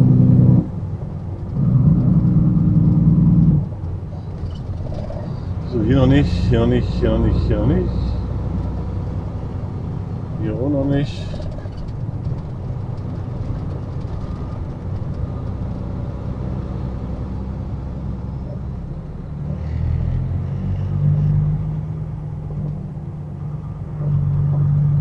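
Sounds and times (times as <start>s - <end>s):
truck diesel engine running: 0.0s - 19.3s
road noise: 0.0s - 25.0s.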